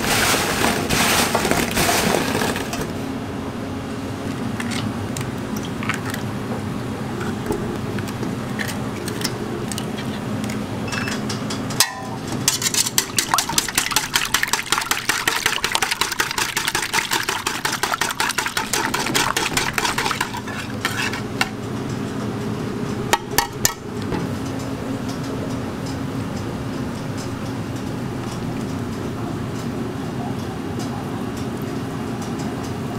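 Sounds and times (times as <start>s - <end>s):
steady low hum: 0.0s - 32.9s
whisk beating eggs in metal bowl: 12.4s - 21.4s.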